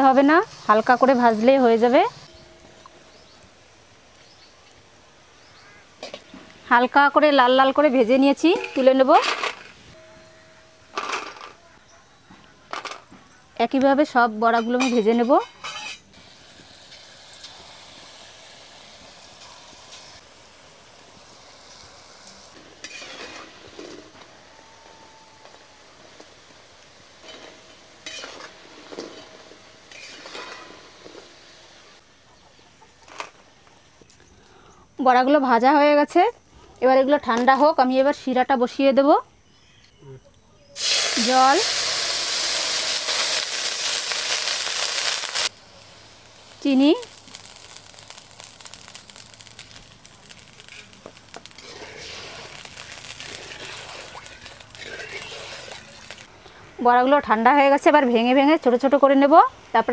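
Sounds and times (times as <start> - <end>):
oil sizzling in a wok: 0.0 - 9.2, 13.6 - 32.7, 40.8 - 59.9
metal spoon scraping a wok: 14.6 - 16.1, 22.8 - 24.1, 27.2 - 31.2, 50.6 - 56.2
sugar grains falling into water: 46.5 - 56.3.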